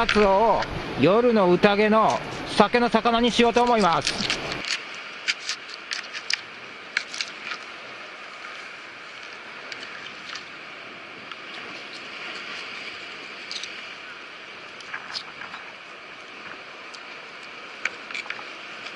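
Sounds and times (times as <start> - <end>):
sea water washing over rocks: 0.0 - 18.9.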